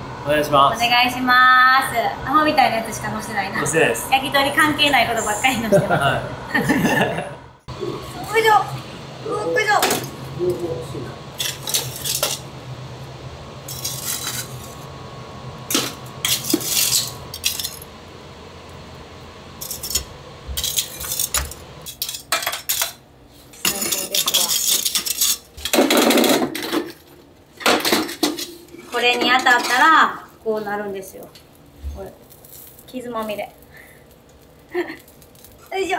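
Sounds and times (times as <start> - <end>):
dishes clattering and clinking: 20.6 - 23.0.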